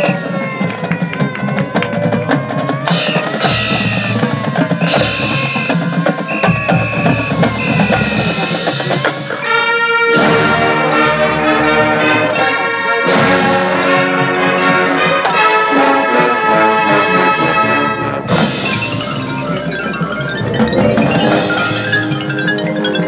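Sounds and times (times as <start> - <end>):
held pitched tones: 0.0 - 9.6, 17.5 - 23.0
marching band drums and percussion: 0.0 - 23.0
brass section sustained chord: 9.4 - 18.6.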